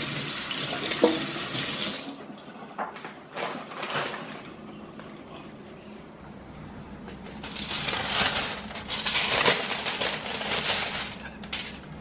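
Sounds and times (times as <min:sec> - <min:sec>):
aluminium foil crinkling: 0:07.2 - 0:12.0.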